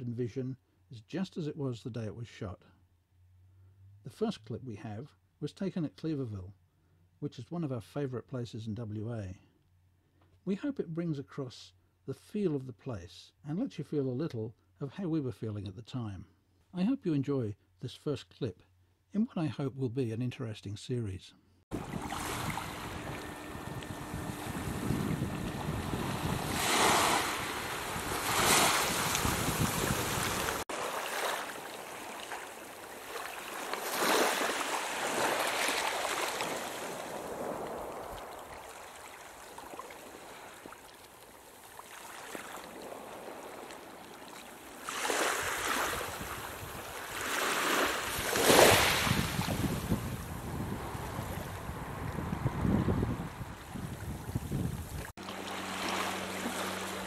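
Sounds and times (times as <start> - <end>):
wind buffeting microphone: 21.7 - 30.6, 48.1 - 55.1
small waves washing onto beach: 21.7 - 57.0.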